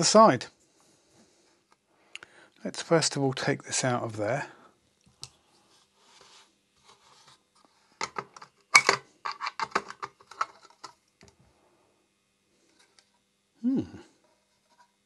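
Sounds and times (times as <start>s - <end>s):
faint scratchy rubbing: 5.6s - 7.6s.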